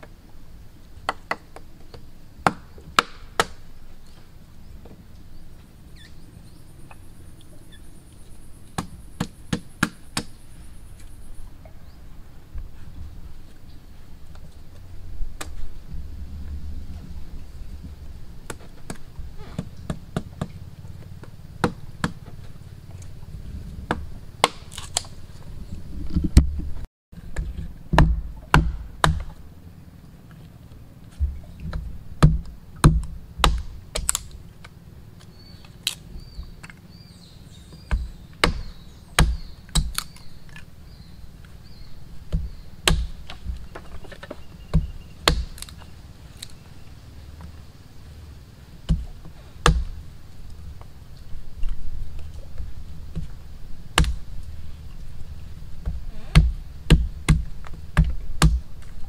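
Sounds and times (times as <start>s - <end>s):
hand tool chopping wood: 8.8s - 10.4s, 18.5s - 20.6s, 21.6s - 22.4s, 23.9s - 25.1s, 27.4s - 29.4s, 32.2s - 34.3s, 37.8s - 40.2s, 42.3s - 45.8s, 48.9s - 50.0s, 55.8s - 58.9s.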